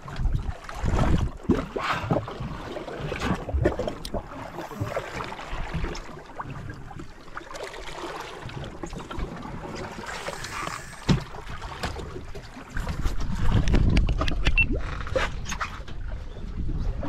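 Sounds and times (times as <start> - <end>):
water lapping against boat hull: 0.0 - 17.0
wind buffeting microphone: 12.8 - 15.2.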